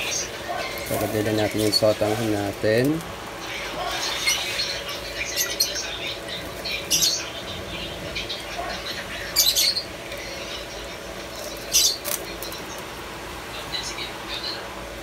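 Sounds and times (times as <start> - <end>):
broth boiling with hiss: 0.0 - 15.0.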